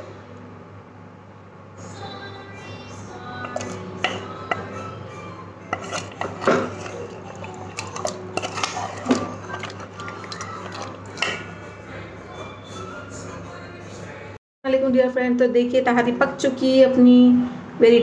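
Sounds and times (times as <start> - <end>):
utensil scraping cooking pot: 3.4 - 4.9, 5.7 - 11.6.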